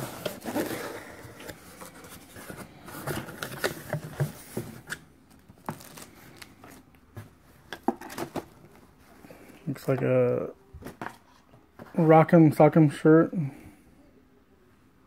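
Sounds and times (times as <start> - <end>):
cardboard box rustling: 0.0 - 8.7.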